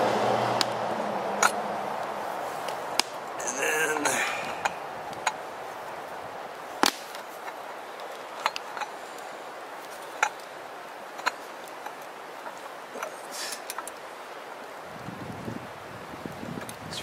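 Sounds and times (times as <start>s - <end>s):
campfire crackling and popping: 0.0s - 17.0s
fire hissing: 1.5s - 15.0s.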